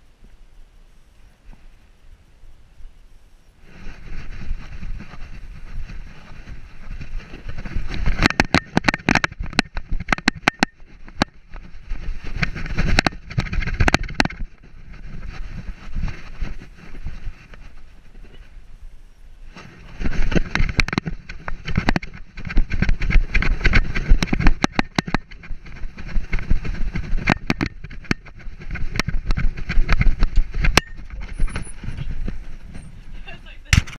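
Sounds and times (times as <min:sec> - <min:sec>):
camera mount rubbing and knocking: 0:04.1 - 0:18.5, 0:20.0 - 0:33.0.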